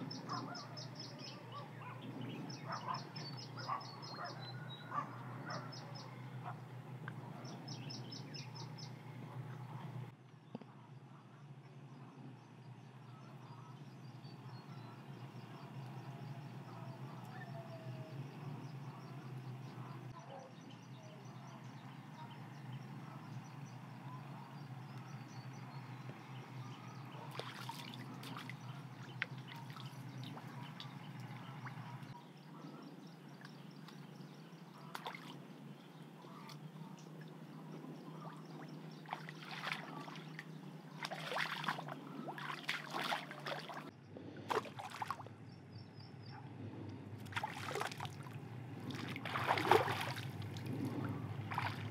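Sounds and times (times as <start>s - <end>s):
muddy water sloshing: 23.4s - 45.4s, 47.1s - 51.9s
short splashes: 27.2s - 32.1s, 34.8s - 35.5s, 38.2s - 45.3s, 47.2s - 51.9s.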